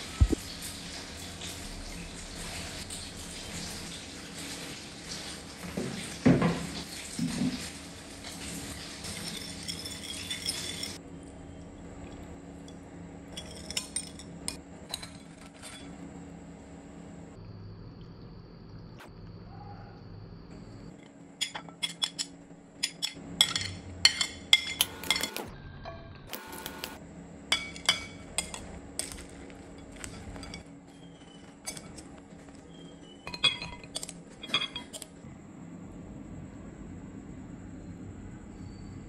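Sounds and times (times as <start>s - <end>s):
glass bowl and dishes clinking: 9.0s - 11.0s, 33.0s - 35.1s.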